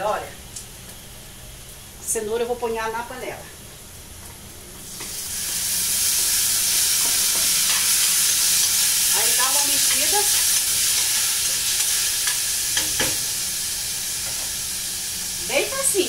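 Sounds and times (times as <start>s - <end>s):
food sizzling in a pan: 4.1s - 16.0s.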